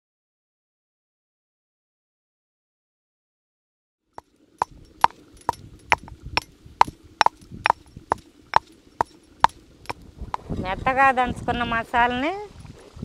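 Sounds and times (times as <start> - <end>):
stone pestle pounding in mortar: 5.9 - 6.1, 7.2 - 7.8.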